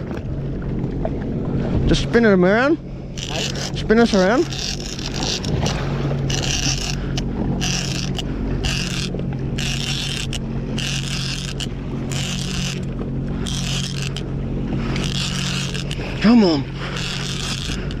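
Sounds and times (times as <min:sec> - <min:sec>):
jet ski engine running: 0:00.0 - 0:18.0
fishing reel cranking: 0:03.2 - 0:14.3, 0:14.9 - 0:18.0.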